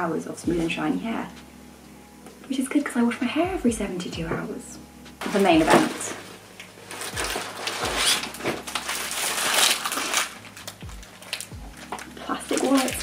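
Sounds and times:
plastic crackling and rustling: 5.2 - 13.0.

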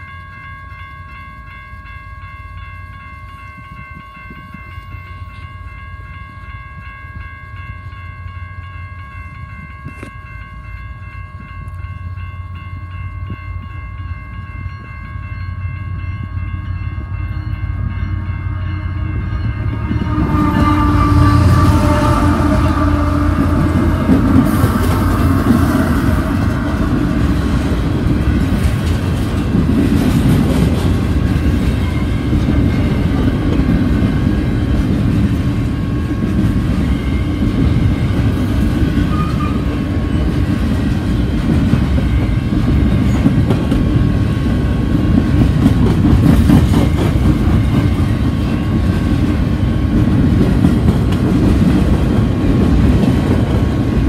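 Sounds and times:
freight train rumble: 0.0 - 54.0
wheels clacking over rail joints: 19.5 - 54.0.

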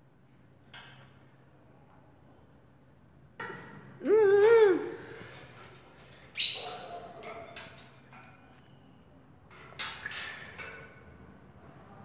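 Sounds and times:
parakeet screeching: 6.4 - 7.0.

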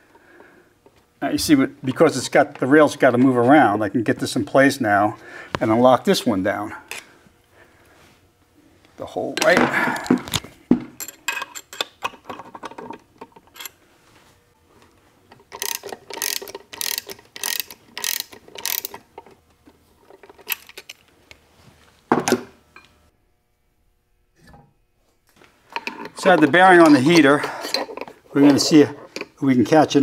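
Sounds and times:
metal gearbox parts clicking: 15.5 - 19.0.

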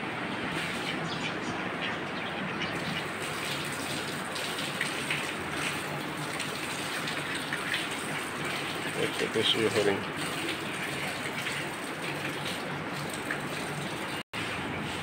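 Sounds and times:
running water gushing: 2.6 - 14.2.

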